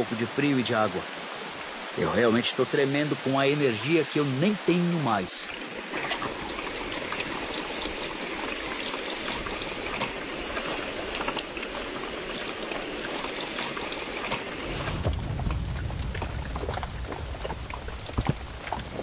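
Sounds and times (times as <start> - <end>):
heavy rain falling: 9.5 - 19.0
sharp raindrop impacts: 13.7 - 19.0.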